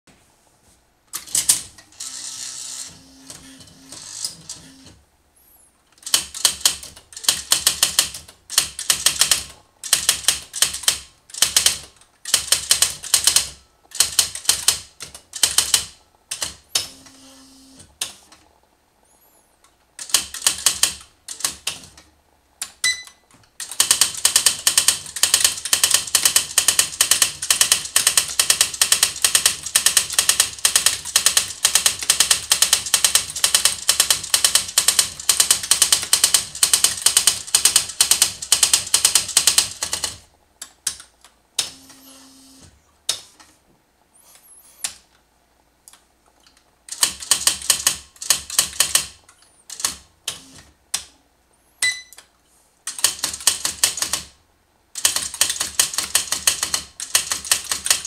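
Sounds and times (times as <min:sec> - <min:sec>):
electronic typewriter typing: 0:01.2 - 0:05.0, 0:05.9 - 0:18.2, 0:20.0 - 0:22.0, 0:22.6 - 0:43.3, 0:46.9 - 0:51.2, 0:52.9 - 0:54.4, 0:55.0 - 0:58.0
brief beep: 0:22.8 - 0:23.3, 0:51.8 - 0:52.2.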